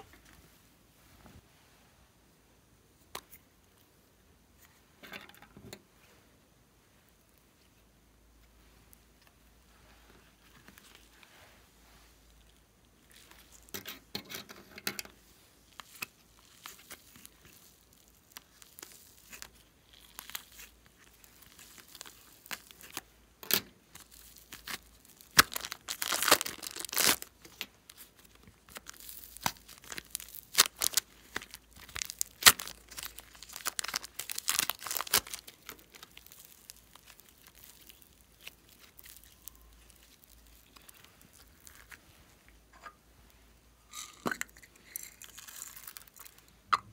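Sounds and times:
plastic bags crinkling and tearing: 0:15.6 - 0:23.0, 0:23.8 - 0:42.1, 0:44.8 - 0:46.5.

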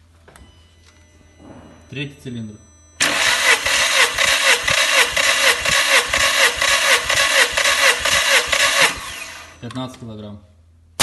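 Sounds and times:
engine cranking by starter motor: 0:03.0 - 0:09.7.

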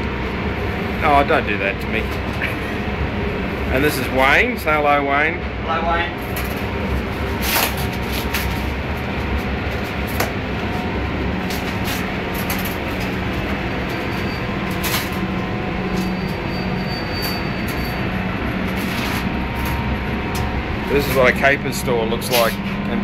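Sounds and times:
fans rushing: 0:00.0 - 0:23.0
low hum: 0:00.0 - 0:23.0.

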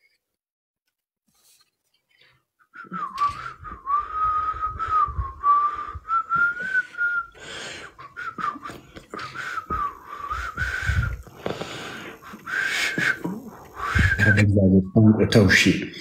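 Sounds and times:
man whistling a melody: 0:02.7 - 0:07.4, 0:08.1 - 0:11.1, 0:12.5 - 0:14.5
breath: 0:03.2 - 0:14.2.

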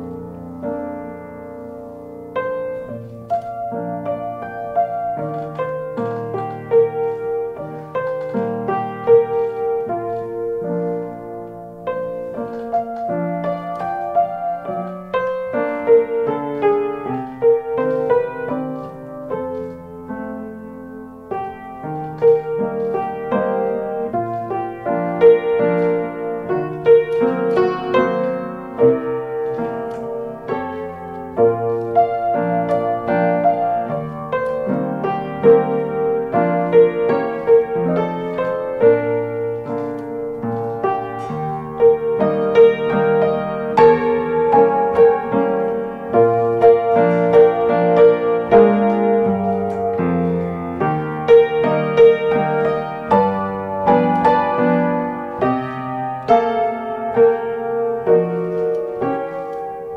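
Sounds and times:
slow jazz piano tune: 0:00.0 - 0:59.9.

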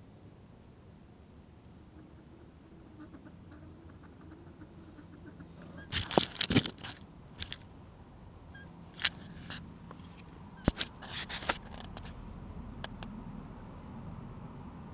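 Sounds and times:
bird tapping and scraping on gravel: 0:05.7 - 0:07.7, 0:08.9 - 0:12.2
camera jostled: 0:05.9 - 0:07.7, 0:08.9 - 0:12.2.

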